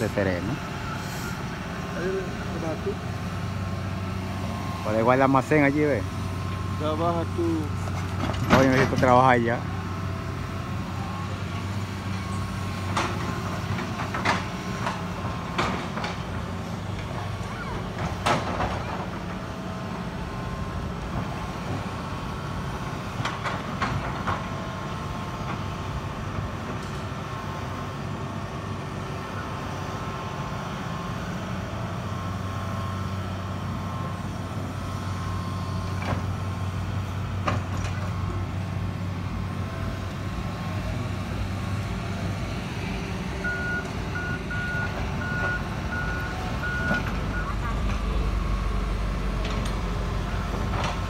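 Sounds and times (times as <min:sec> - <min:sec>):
diesel engine running: 0:00.0 - 0:51.0
reversing alarm beeping: 0:43.4 - 0:48.9.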